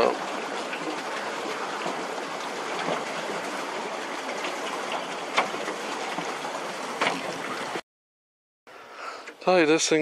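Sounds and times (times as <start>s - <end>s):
paddle boat water churning: 0.0s - 7.8s.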